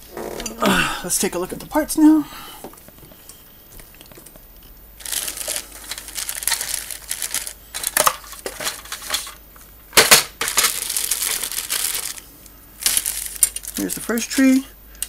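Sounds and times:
plastic bags crinkling: 0:03.8 - 0:09.4, 0:10.0 - 0:14.7.

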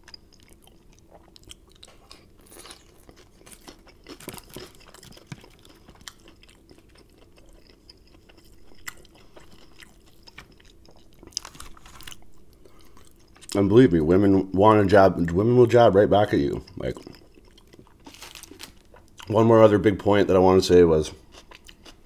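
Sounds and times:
person chewing crunchy food: 0:00.0 - 0:13.6, 0:16.4 - 0:19.4, 0:21.1 - 0:22.0.

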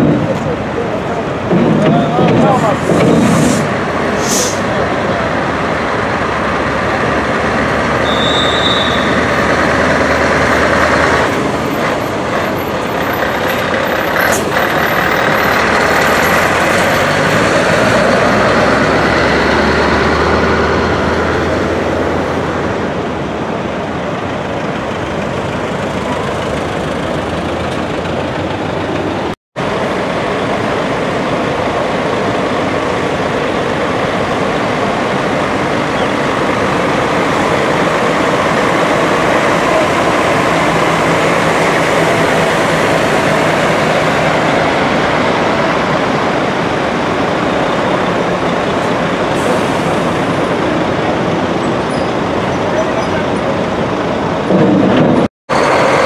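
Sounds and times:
road and rolling noise: 0:00.0 - 0:56.0
truck diesel engines: 0:00.0 - 0:56.0
air hiss: 0:02.7 - 0:04.7.

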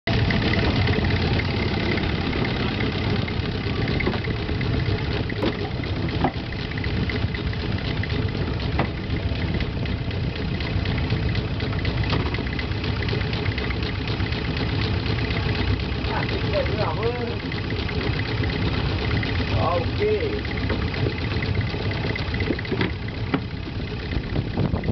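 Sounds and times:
boat engine running: 0:00.0 - 0:24.9.

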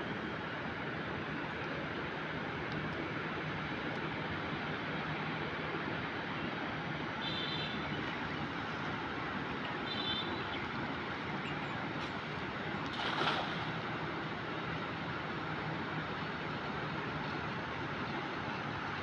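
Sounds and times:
river water: 0:00.0 - 0:19.0
cast net splashing on water: 0:12.0 - 0:14.0.

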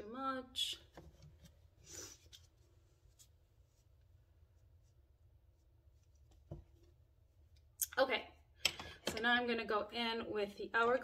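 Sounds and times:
faint soft rustle: 0:01.0 - 0:06.9.

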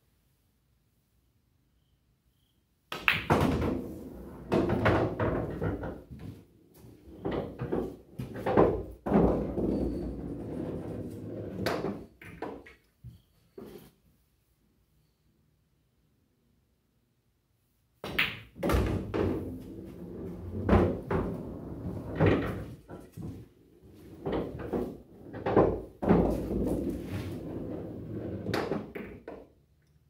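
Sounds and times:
balls rolling through ball return: 0:02.9 - 0:12.8, 0:18.0 - 0:29.5
pool ball knock: 0:18.0 - 0:19.6, 0:24.4 - 0:27.0.

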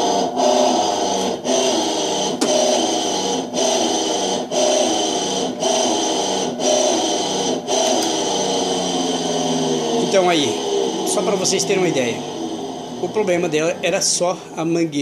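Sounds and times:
washing machine motor grinding: 0:00.0 - 0:15.0
person talking: 0:10.0 - 0:12.3, 0:13.0 - 0:15.0.

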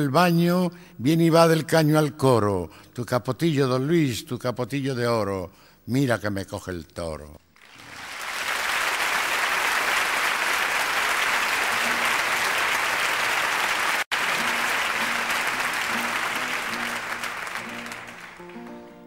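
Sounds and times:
audience applauding: 0:07.6 - 0:19.0.

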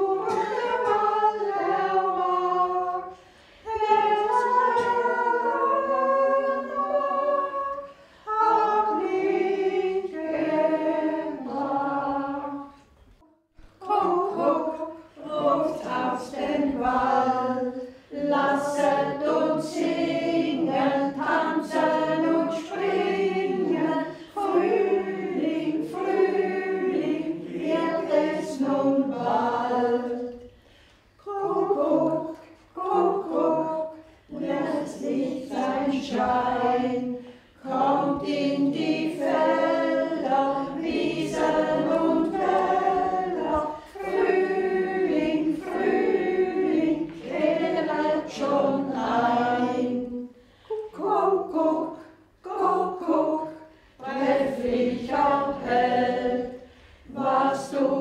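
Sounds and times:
group singing unaccompanied: 0:00.0 - 0:58.0
singers breathing: 0:03.1 - 0:03.7, 0:50.4 - 0:50.7, 0:56.6 - 0:57.1.

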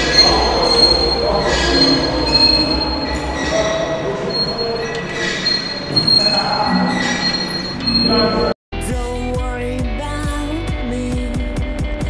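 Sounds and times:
cable pulley squealing: 0:00.0 - 0:08.6.

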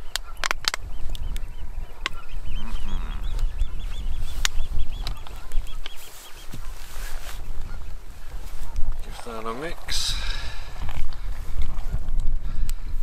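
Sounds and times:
bird calling: 0:00.0 - 0:12.8.

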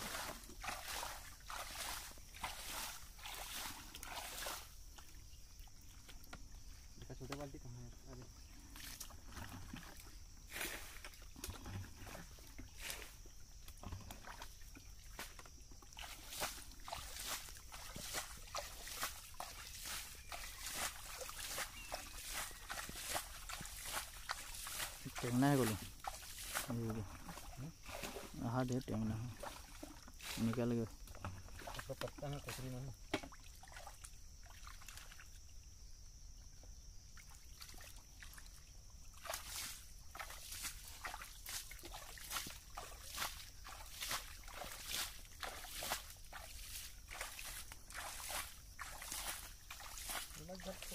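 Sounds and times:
hands splashing in muddy water: 0:00.0 - 0:04.8, 0:16.0 - 0:28.4, 0:39.2 - 0:50.9.

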